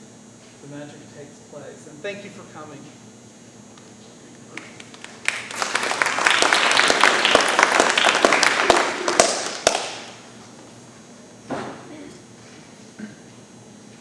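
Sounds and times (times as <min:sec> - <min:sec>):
audience applauding: 0:04.5 - 0:10.2.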